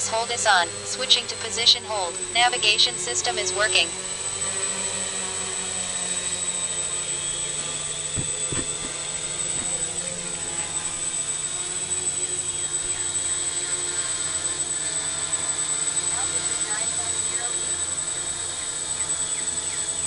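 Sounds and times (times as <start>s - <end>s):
drone propellers buzzing: 0.0s - 20.0s
high motor whine: 0.0s - 20.0s
short knocks: 8.1s - 9.8s.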